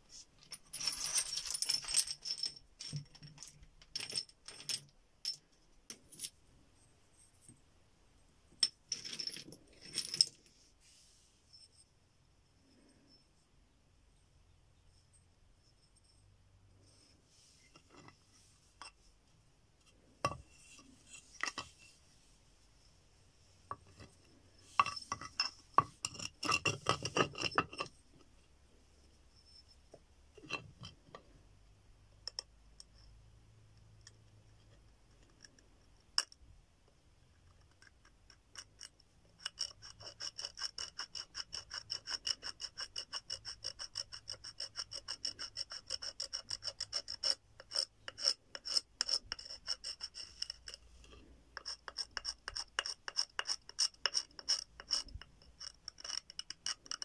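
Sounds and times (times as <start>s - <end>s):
stone flake scraping bone: 38.5s - 57.0s.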